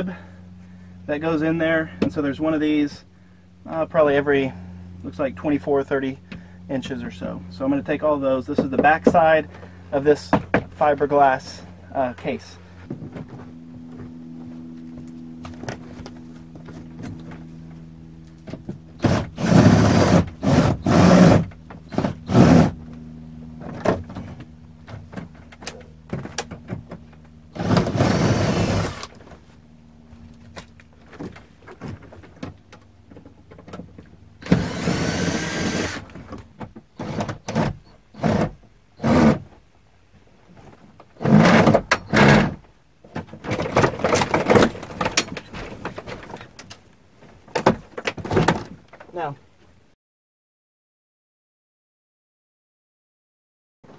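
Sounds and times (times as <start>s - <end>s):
knocks and clanks: 41.0s - 46.8s.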